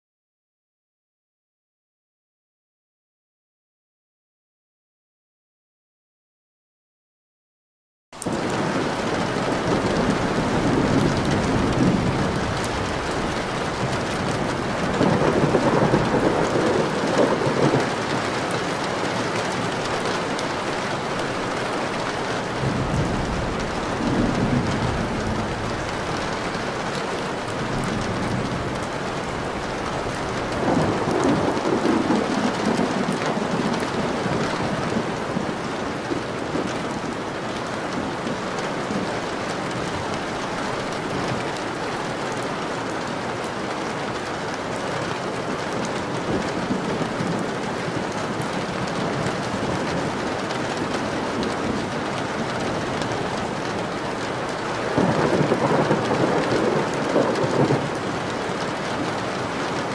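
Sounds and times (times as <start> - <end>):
rain on a window: 8.2 - 59.9
thunder rumbling: 8.3 - 41.8, 45.7 - 59.9.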